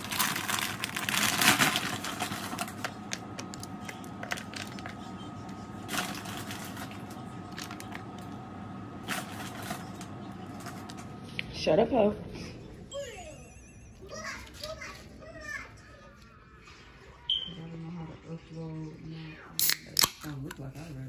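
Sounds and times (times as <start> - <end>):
food packaging crinkling: 0.0 - 8.3, 9.0 - 11.2.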